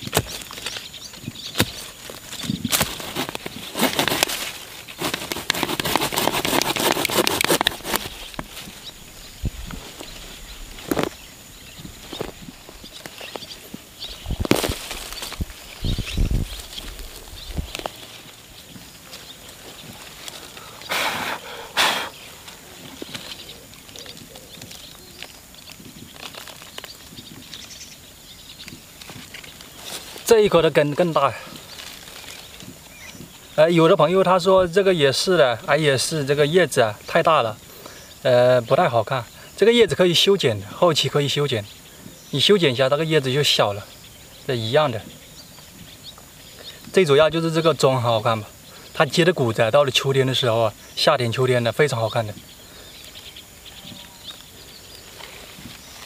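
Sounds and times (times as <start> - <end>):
mattock striking soil: 0.0 - 8.8, 10.8 - 11.2, 12.1 - 18.9
hands rustling through grass: 0.0 - 33.5, 52.4 - 56.0
light crackles: 0.0 - 33.6, 51.8 - 56.0
earth and roots scraping: 0.0 - 56.0.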